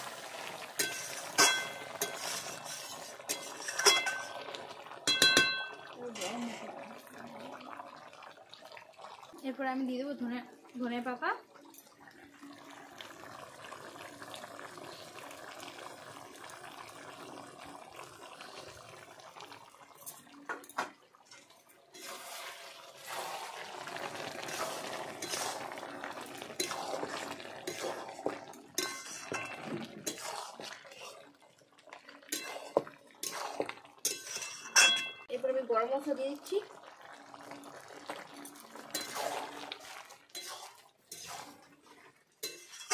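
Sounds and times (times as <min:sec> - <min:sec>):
curry simmering and bubbling: 0:00.0 - 0:42.9
spatula clinking against pan: 0:00.8 - 0:02.2, 0:03.3 - 0:04.3, 0:05.0 - 0:05.8, 0:34.1 - 0:35.3, 0:42.4 - 0:42.9
metal spatula scraping pan: 0:00.8 - 0:04.4, 0:21.9 - 0:23.3, 0:26.6 - 0:28.0, 0:28.8 - 0:31.2, 0:32.3 - 0:35.2, 0:38.9 - 0:39.6, 0:40.3 - 0:41.6, 0:42.4 - 0:42.9.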